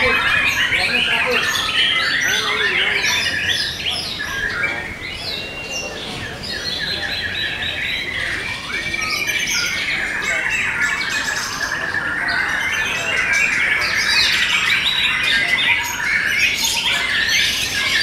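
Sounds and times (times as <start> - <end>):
birds singing whistled phrases: 0.0 - 18.0.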